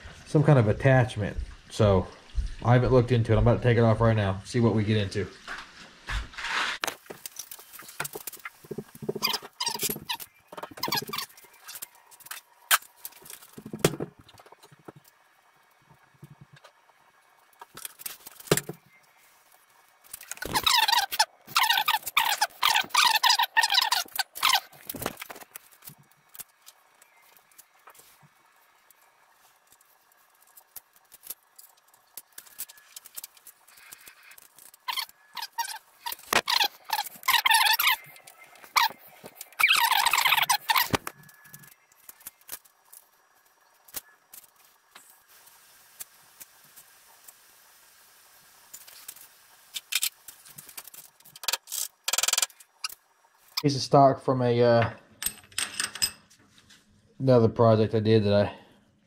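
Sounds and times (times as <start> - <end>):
faint room hiss: 0.0 - 59.0
squeaky metal scraping: 9.0 - 11.9, 34.8 - 41.7
metal parts clicking and tapping: 55.2 - 56.3
metal tools clattering: 55.2 - 56.3.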